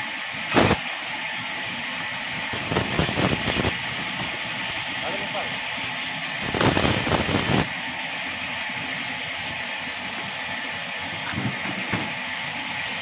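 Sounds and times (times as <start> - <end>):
band saw cutting logs: 0.0 - 7.8.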